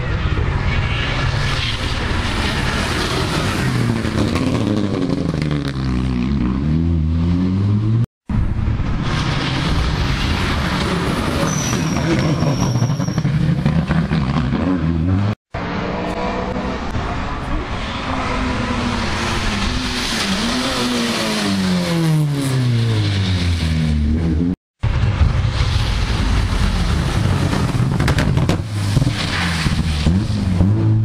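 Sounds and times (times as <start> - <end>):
rally car engines at full throttle: 0.0 - 31.0.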